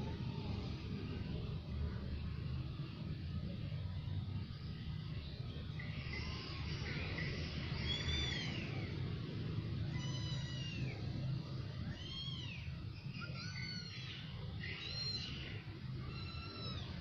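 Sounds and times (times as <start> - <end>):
steady low rumble: 0.0 - 13.3
cat meowing: 9.8 - 11.1, 11.8 - 14.0, 14.6 - 17.0.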